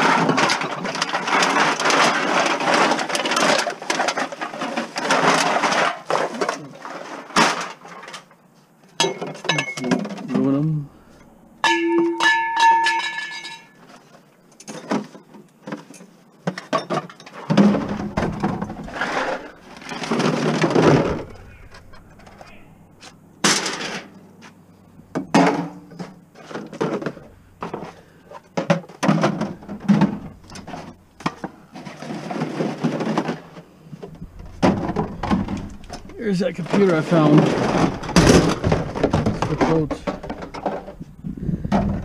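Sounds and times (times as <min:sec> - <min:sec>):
rustling: 0:00.0 - 0:09.0, 0:13.3 - 0:42.0
metal and plastic clattering: 0:00.0 - 0:10.5, 0:11.6 - 0:24.2, 0:25.0 - 0:42.0
struck metal ringing: 0:11.6 - 0:13.8.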